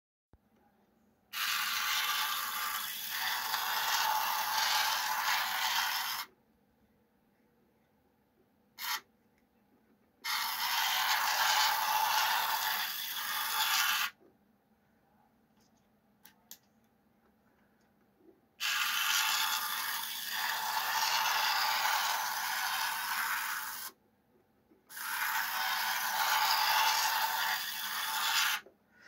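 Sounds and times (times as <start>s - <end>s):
small electric motor whirring: 1.4s - 6.3s, 10.2s - 14.2s, 18.6s - 24.0s, 24.9s - 28.6s.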